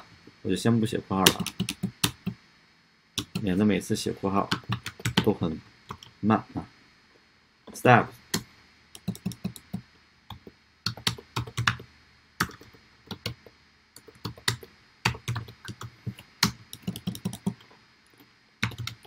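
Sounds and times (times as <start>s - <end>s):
computer keyboard typing: 1.3s - 2.4s, 3.2s - 3.6s, 4.5s - 5.3s, 9.0s - 11.8s, 12.4s - 17.7s, 18.6s - 19.0s.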